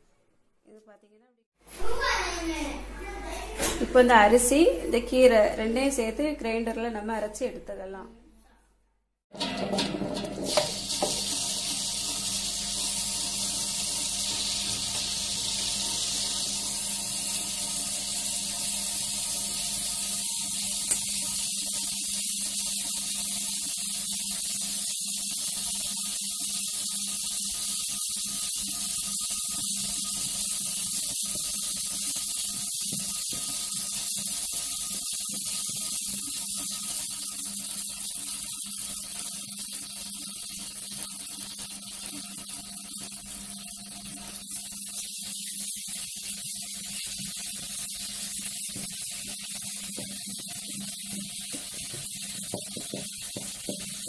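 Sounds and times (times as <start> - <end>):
stone wet grinder hissing: 10.0 - 38.8, 44.3 - 54.0.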